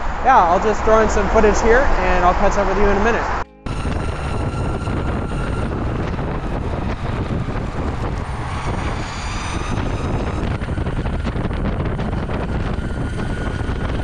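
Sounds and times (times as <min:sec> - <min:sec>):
low rumble of wheels on road: 0:00.0 - 0:14.0
wind rushing over microphone: 0:00.0 - 0:14.0
high electric motor whine: 0:03.2 - 0:14.0.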